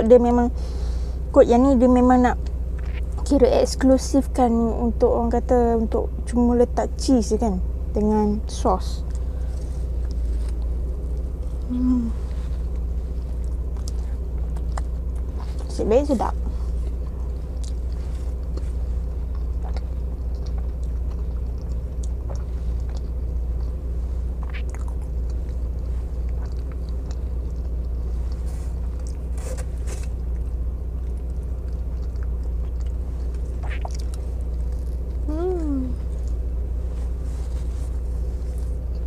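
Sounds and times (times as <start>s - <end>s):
steady low hum: 0.0s - 39.0s
person chewing food: 9.0s - 15.7s, 16.4s - 35.3s, 35.9s - 39.0s.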